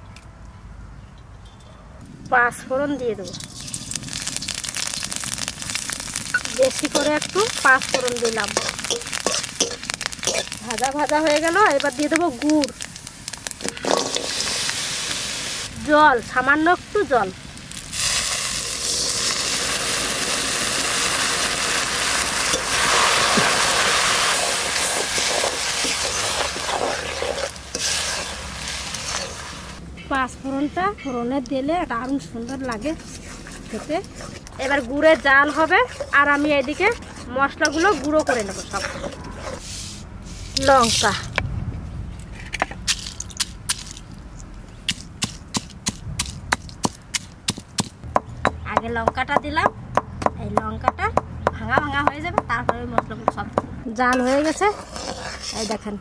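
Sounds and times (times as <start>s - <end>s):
water sizzling in hot oil: 3.3s - 29.8s
pestle pounding in stone mortar: 44.9s - 50.4s.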